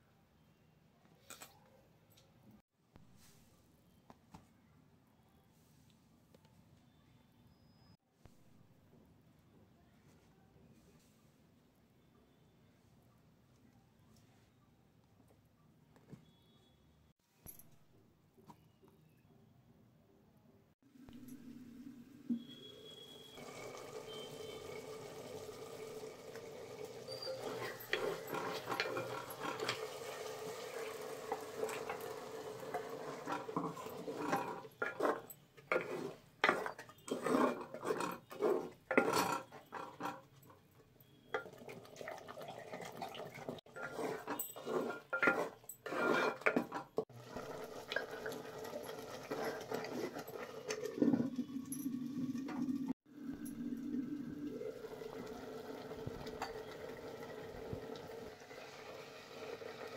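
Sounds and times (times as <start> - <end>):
clay lid scraping and knocking: 27.1 - 29.8, 31.6 - 40.3, 43.7 - 47.0
stirring knocks in clay pot: 32.7 - 40.2.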